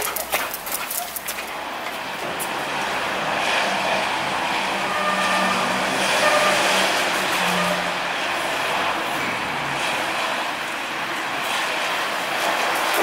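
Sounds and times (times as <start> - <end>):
car passing: 0.0 - 13.0
road noise: 0.0 - 13.0.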